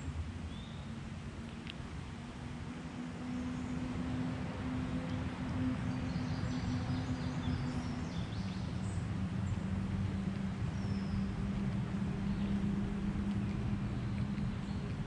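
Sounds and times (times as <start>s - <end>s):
low engine drone: 0.0s - 15.0s
faint high bird chirps: 10.7s - 11.4s.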